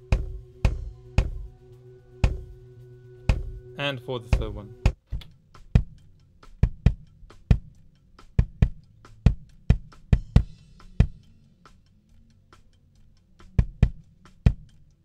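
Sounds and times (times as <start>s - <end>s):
deep kick drum hits: 0.0s - 1.6s, 2.2s - 2.6s, 3.3s - 5.0s
faint drum kit bleed: 0.0s - 15.0s.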